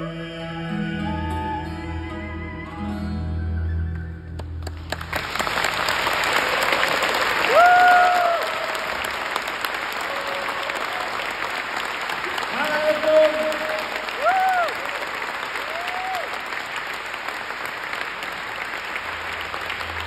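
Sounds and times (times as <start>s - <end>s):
audience applause: 4.4s - 20.0s
person cheering: 6.4s - 9.0s, 12.5s - 15.1s, 15.7s - 16.3s.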